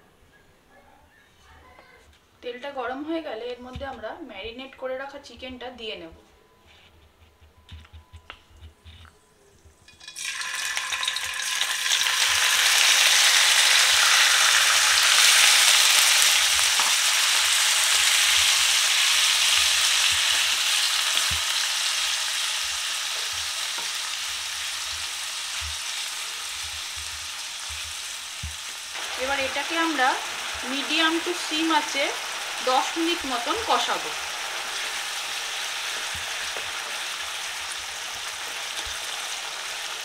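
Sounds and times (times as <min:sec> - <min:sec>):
chicken sizzling in hot oil: 0:09.9 - 0:40.0.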